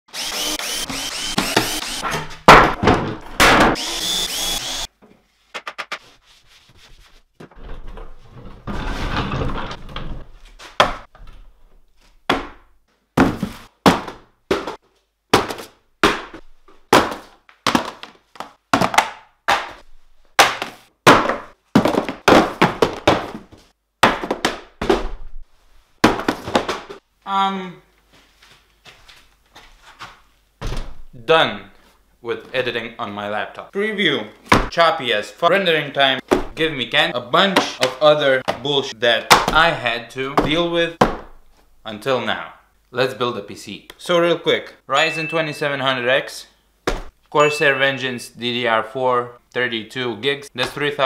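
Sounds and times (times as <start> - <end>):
power tool running on wood: 0.1 - 2.0, 3.8 - 4.9
cardboard boxes thunking on table: 2.4 - 3.7, 13.2 - 19.8, 20.4 - 25.2, 26.0 - 27.0.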